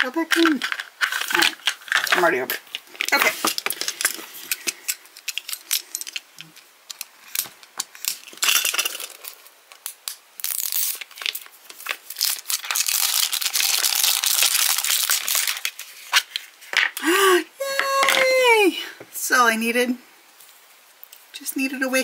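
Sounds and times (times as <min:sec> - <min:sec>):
foil wrapper crinkling: 0:00.0 - 0:16.7.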